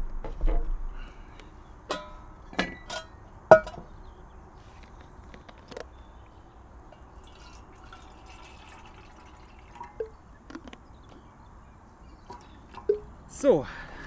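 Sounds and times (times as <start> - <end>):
water pouring into metal pot: 7.0 - 10.2.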